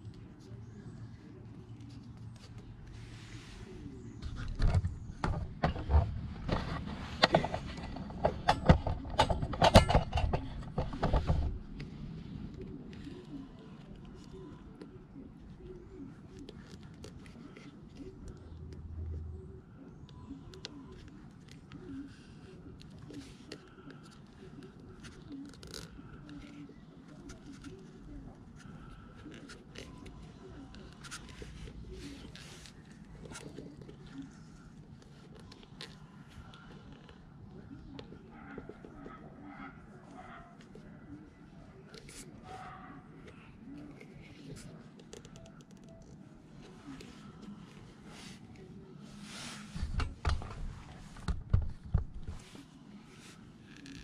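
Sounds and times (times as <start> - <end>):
plastic scraping on metal: 4.2 - 11.8
bird cooing: 12.5 - 49.5.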